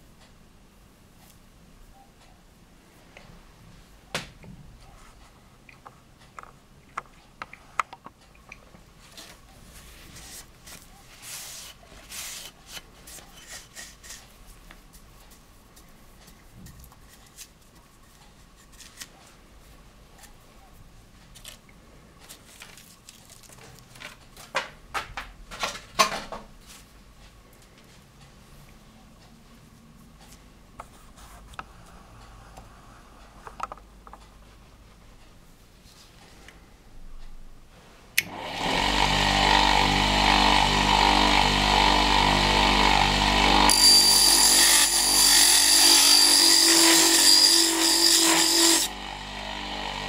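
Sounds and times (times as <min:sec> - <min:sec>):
lathe motor whine: 0:38.3 - 0:43.7, 0:48.9 - 0:50.0.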